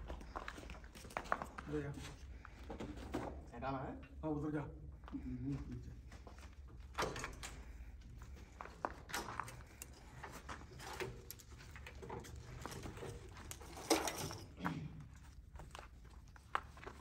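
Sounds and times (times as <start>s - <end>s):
wiring harness clicks and rustling: 6.0s - 17.0s.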